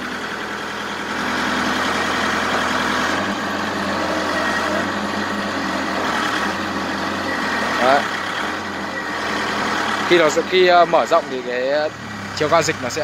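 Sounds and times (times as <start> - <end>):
forklift engine running: 0.0 - 13.0.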